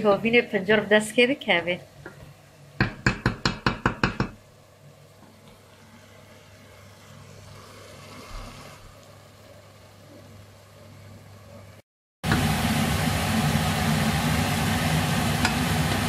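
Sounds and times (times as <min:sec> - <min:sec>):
wooden spoon knocking on pot: 0:02.8 - 0:04.4.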